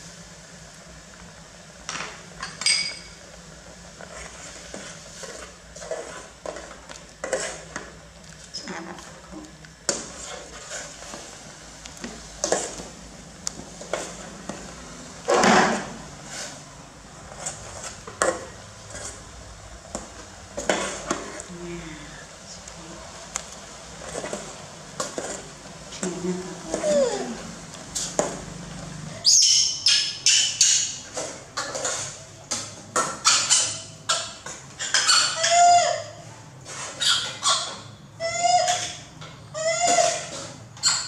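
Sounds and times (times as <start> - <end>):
ladle clinking and scraping pot: 4.1 - 7.9, 30.2 - 35.4.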